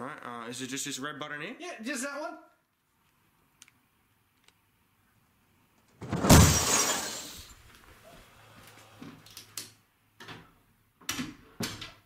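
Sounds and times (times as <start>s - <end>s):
knocks and clatters: 6.0s - 7.2s
tv crashing down: 6.0s - 7.5s.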